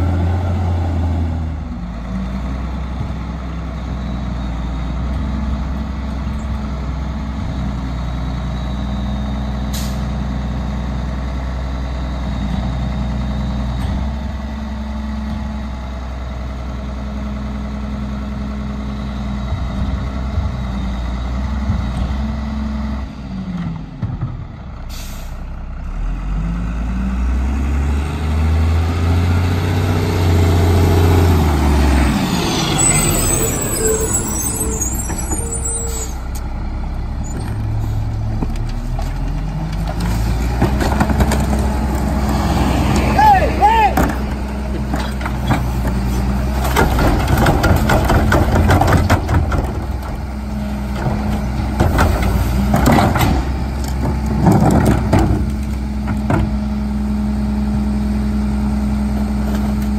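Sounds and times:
air brake hisses: 0:24.9 - 0:25.5.

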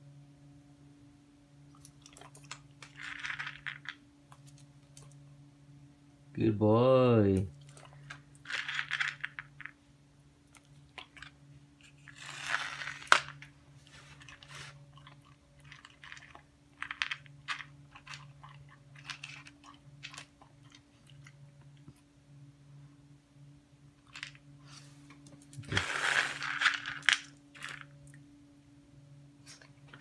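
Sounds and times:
dog crunching dry kibble: 0:01.7 - 0:05.2, 0:07.6 - 0:09.8, 0:10.5 - 0:21.9, 0:24.0 - 0:24.4, 0:25.5 - 0:28.1
kibble rattling in bowl: 0:02.0 - 0:04.0, 0:08.0 - 0:09.8, 0:12.0 - 0:13.4, 0:15.0 - 0:20.8, 0:25.8 - 0:27.9.

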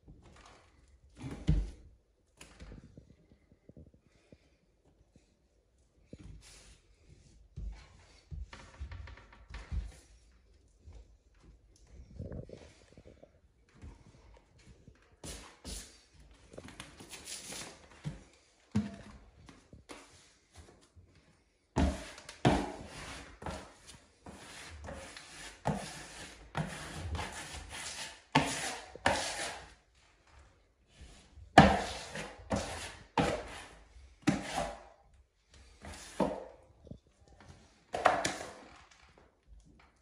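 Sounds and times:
smoother scraping on wallpaper: 0:21.9 - 0:29.8, 0:31.6 - 0:34.9.

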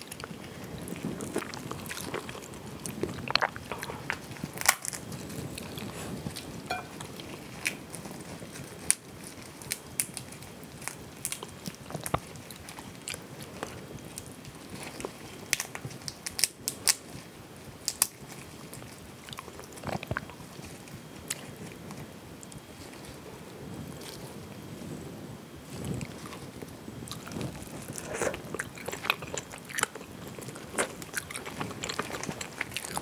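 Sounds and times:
crayfish shells cracking: 0:01.2 - 0:05.8, 0:08.8 - 0:12.3, 0:15.5 - 0:17.1.

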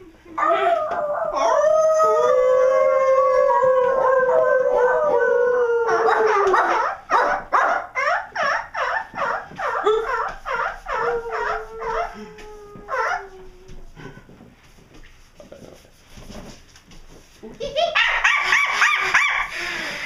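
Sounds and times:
howling voices: 0:00.0 - 0:07.1, 0:07.8 - 0:14.1.

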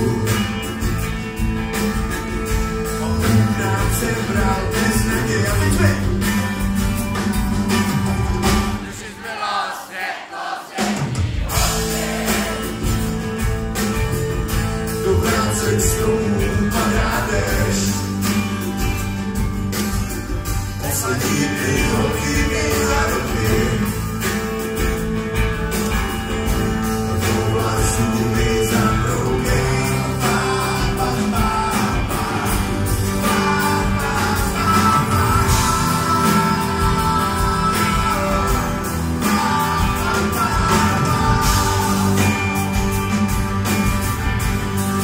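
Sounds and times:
live rock band: 0:00.0 - 0:45.0
person singing: 0:02.4 - 0:06.4, 0:14.8 - 0:18.8, 0:20.7 - 0:24.4, 0:25.8 - 0:43.4.

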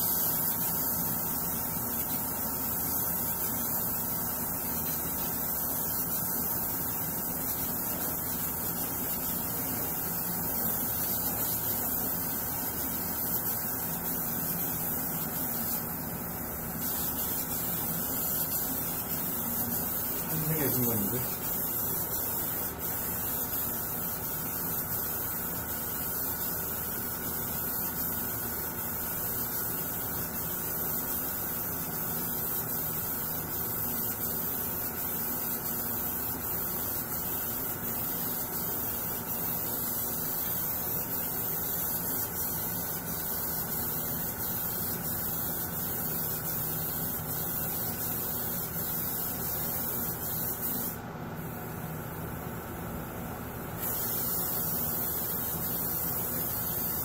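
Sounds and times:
ventilation hum and rushing air: 0:00.0 - 0:27.6
airbrush hissing: 0:00.0 - 0:51.0, 0:53.8 - 0:57.0.

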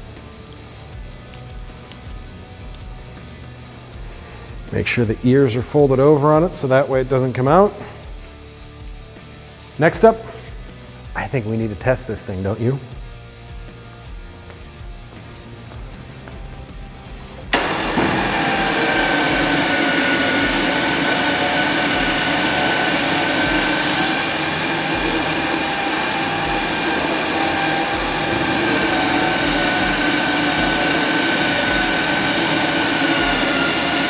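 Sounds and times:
electric winch motor whining: 0:17.5 - 0:34.0.

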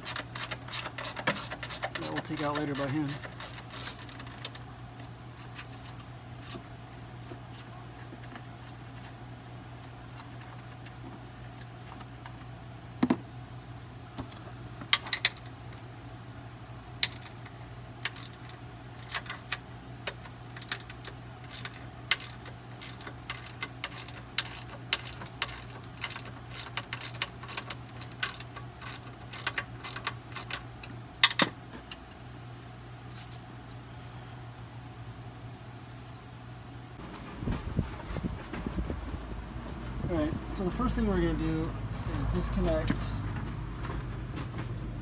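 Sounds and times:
metal tools and bolts clinking: 0:18.0 - 0:19.5, 0:20.5 - 0:30.6.

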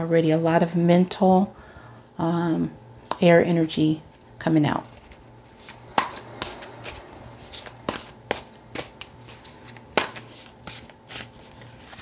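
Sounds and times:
cards brushing and sliding: 0:04.9 - 0:12.0
card snaps: 0:09.8 - 0:10.8.

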